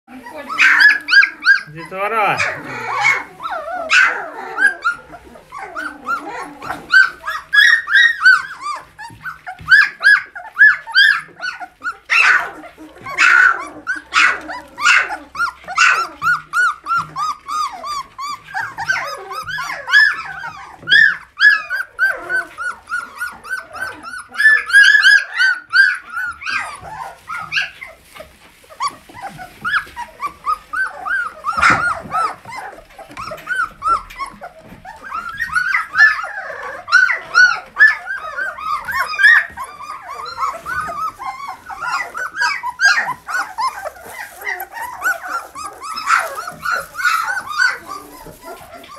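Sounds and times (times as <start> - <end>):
puppies whining and squealing: 0.1 - 48.9.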